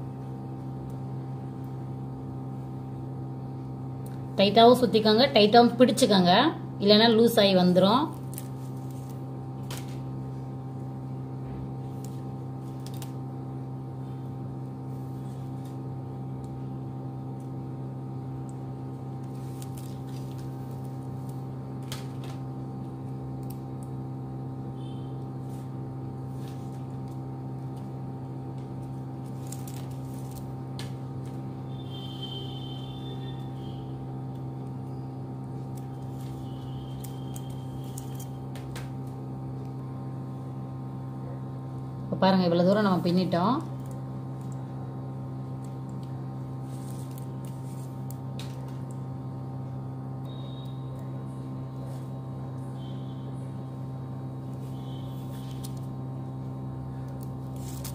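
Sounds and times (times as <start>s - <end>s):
low electrical hum: 0.0s - 57.9s.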